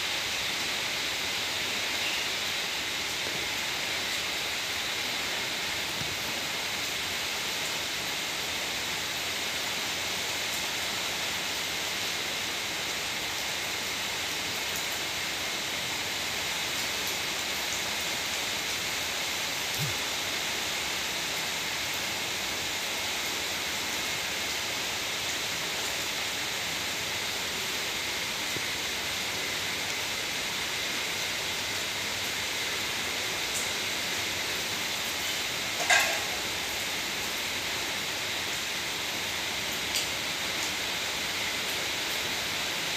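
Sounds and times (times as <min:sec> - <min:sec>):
steady ambient hiss: 0:00.0 - 0:42.9.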